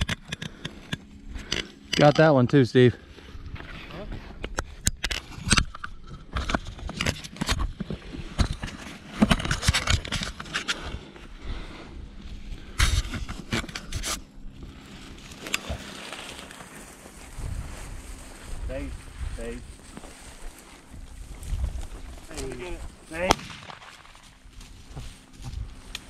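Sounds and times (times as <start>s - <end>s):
dry brush crunching against clothing: 7.9s - 26.0s.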